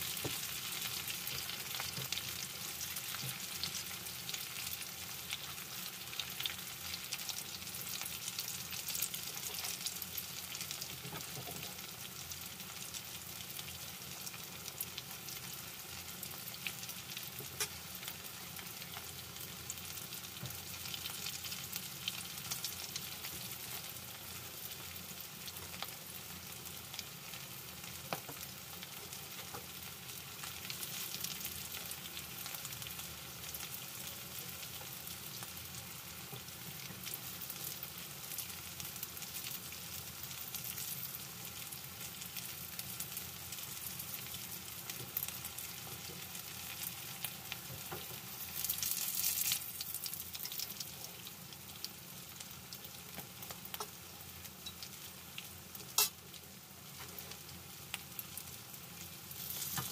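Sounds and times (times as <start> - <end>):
oil crackles and pops: 0.0 - 11.8, 27.8 - 29.7, 36.2 - 59.9
food sizzling in oil: 0.0 - 59.9.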